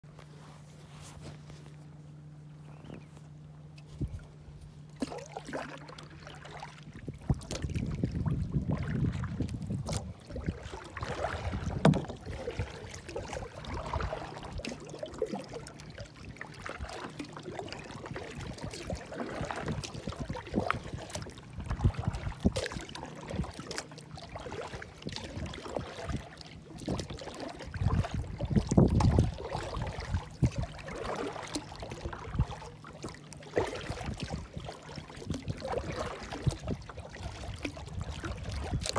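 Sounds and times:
water lapping against kayak hull: 0.0s - 38.9s
small knocks and splashes: 3.8s - 38.9s
wind buffeting microphone: 6.8s - 14.6s, 17.9s - 23.7s, 24.8s - 30.8s, 33.8s - 38.9s.

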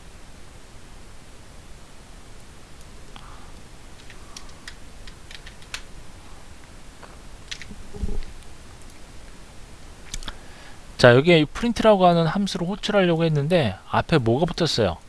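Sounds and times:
keyboard key clicks: 4.0s - 5.9s
short low thump: 7.7s - 8.3s.

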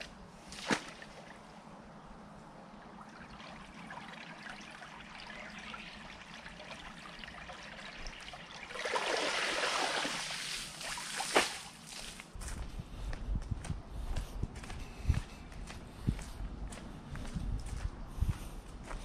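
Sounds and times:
water trickling in ditch: 2.7s - 12.3s.

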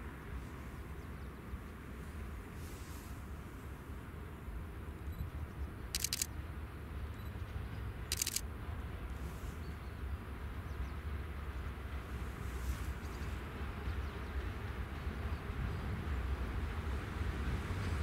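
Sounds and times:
diesel locomotive engine rumble: 0.0s - 18.0s
high-pitched clicking: 6.0s - 6.3s, 8.1s - 8.4s.

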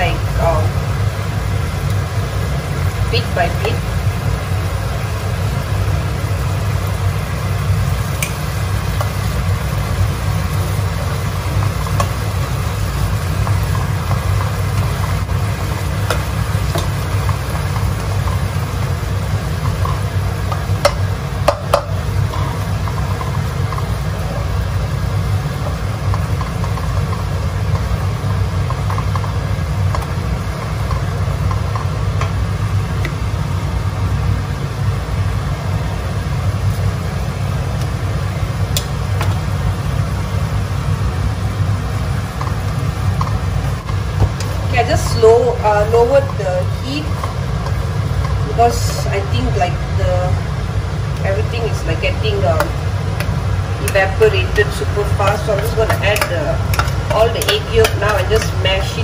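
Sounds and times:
sauce bubbling: 3.7s - 59.0s
spatula scraping in a wok: 52.6s - 59.0s.

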